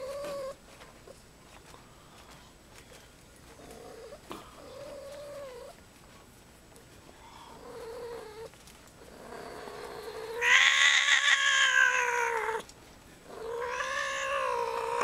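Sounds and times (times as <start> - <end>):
kitten yowling: 10.4 - 12.6, 13.5 - 15.0.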